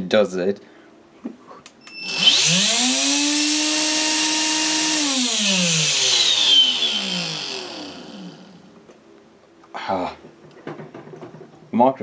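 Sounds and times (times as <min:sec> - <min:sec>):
vacuum motor whining and grinding: 0:01.9 - 0:08.8.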